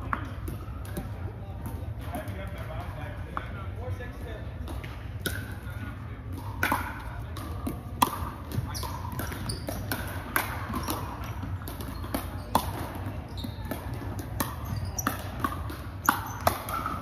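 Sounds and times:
paddles hitting plastic ball: 0:04.6 - 0:17.0.

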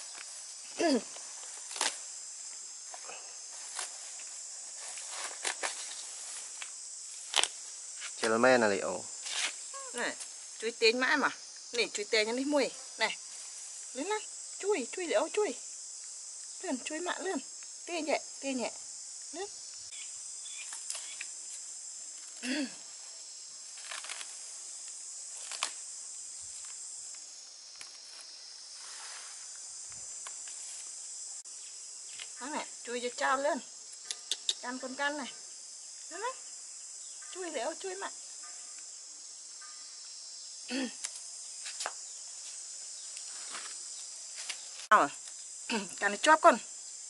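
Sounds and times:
insects chirring: 0:00.0 - 0:47.0.

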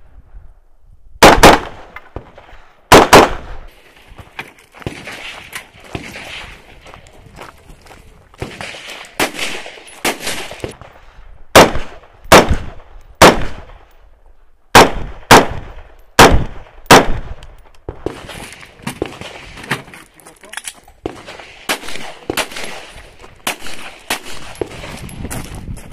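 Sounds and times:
rifle gunshots with echo: 0:01.2 - 0:02.2, 0:02.9 - 0:03.7, 0:08.4 - 0:10.8, 0:11.5 - 0:13.8, 0:14.7 - 0:19.6, 0:21.0 - 0:25.0.

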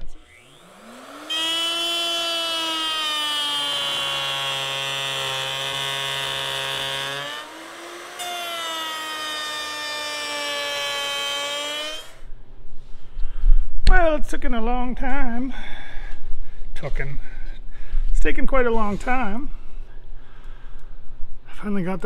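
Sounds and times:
router cutting wood: 0:00.0 - 0:12.2.

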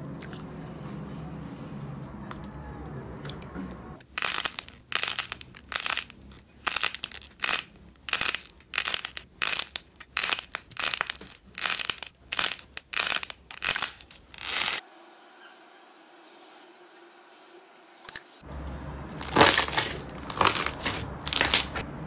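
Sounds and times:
clay coating crunching: 0:04.0 - 0:14.8, 0:19.1 - 0:21.9
slime squishing: 0:04.0 - 0:14.8, 0:19.1 - 0:21.8.

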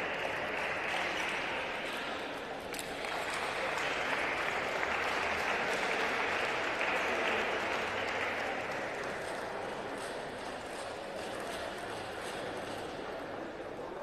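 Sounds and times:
crowd applauding: 0:00.0 - 0:11.2.

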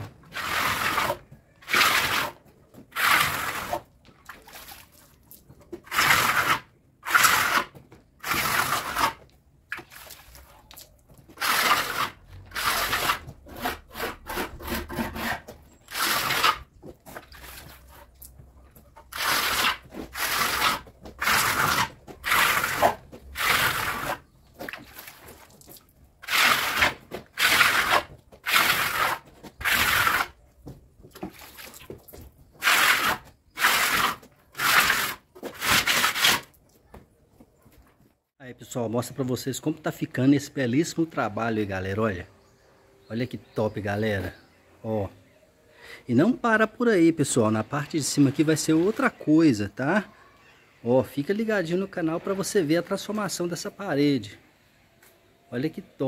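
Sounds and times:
hand tool scraping a wall: 0:00.0 - 0:05.0, 0:05.6 - 0:10.6, 0:11.3 - 0:25.6, 0:26.2 - 0:30.5, 0:31.2 - 0:36.5.

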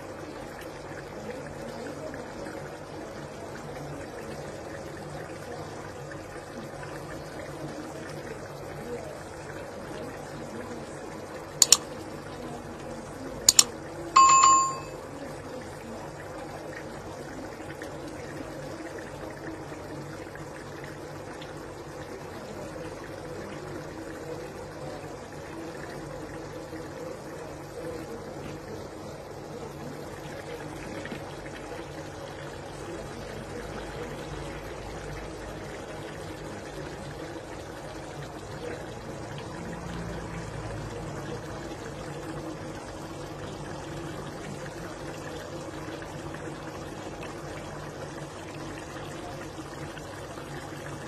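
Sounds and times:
sharp clicks: 0:11.6 - 0:11.8.

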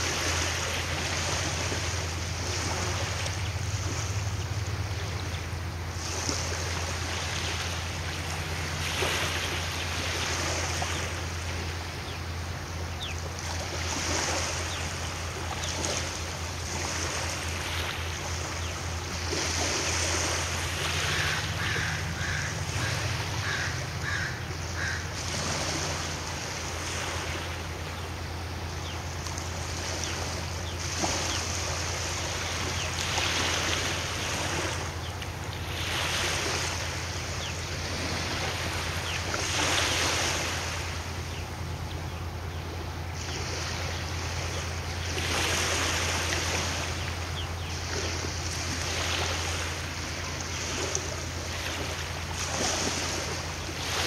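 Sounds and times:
water noise: 0:00.0 - 0:54.0
ferry engines droning: 0:20.2 - 0:30.7
bird calling: 0:20.9 - 0:25.2.

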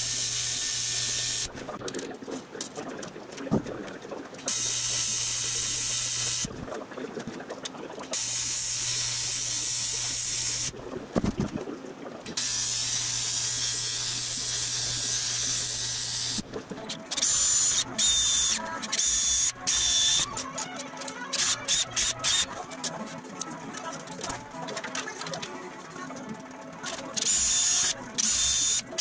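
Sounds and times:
welding arc buzzing and hissing: 0:00.0 - 0:01.5, 0:04.5 - 0:06.5, 0:08.1 - 0:10.8, 0:12.3 - 0:16.4, 0:27.2 - 0:29.0.

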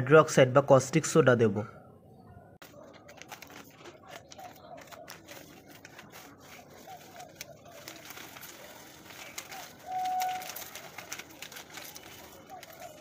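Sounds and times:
faint crackles: 0:02.6 - 0:13.0
plastic bag crinkling: 0:02.6 - 0:13.0.

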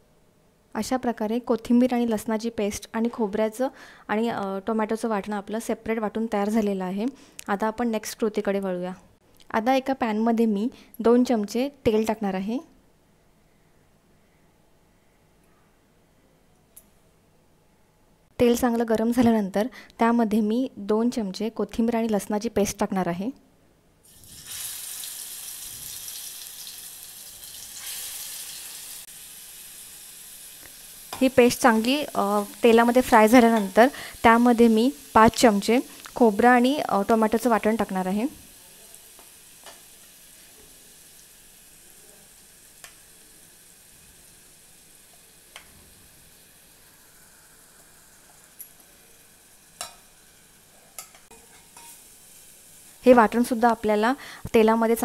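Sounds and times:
paste sizzling in hot oil: 0:24.0 - 0:55.0.

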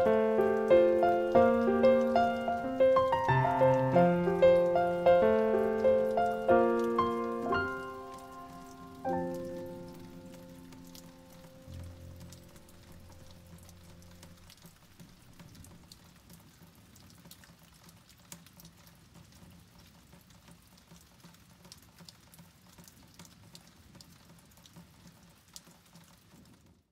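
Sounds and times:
background music: 0:00.0 - 0:14.3
raindrops ticking on hard surfaces: 0:00.0 - 0:26.9.

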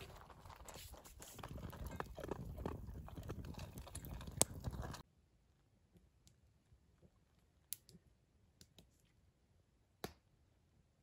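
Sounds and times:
campfire crackling: 0:00.0 - 0:05.0
dog eating from metal bowl: 0:00.0 - 0:05.0.

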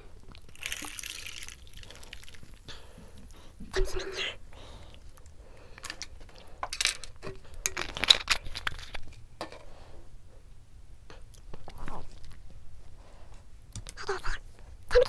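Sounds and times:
rustling and crinkling: 0:05.0 - 0:09.8, 0:11.5 - 0:13.5.

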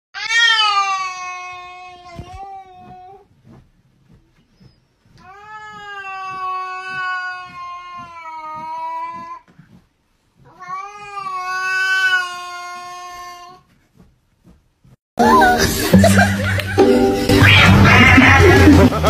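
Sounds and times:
cat yowling: 0:17.4 - 0:18.7.

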